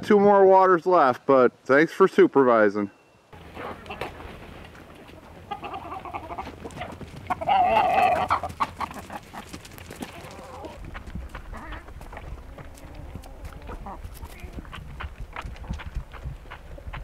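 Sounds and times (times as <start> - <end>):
chickens clucking: 3.4 - 15.1.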